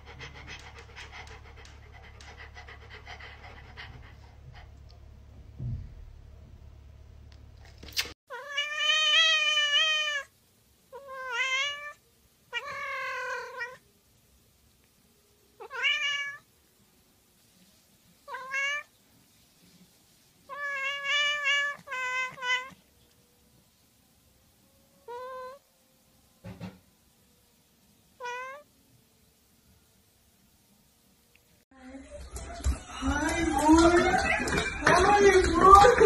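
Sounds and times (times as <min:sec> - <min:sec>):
cat meowing: 0:08.3 - 0:10.3, 0:10.9 - 0:13.8, 0:15.6 - 0:16.5, 0:18.3 - 0:18.9, 0:20.5 - 0:22.9, 0:25.0 - 0:25.6, 0:28.2 - 0:28.7.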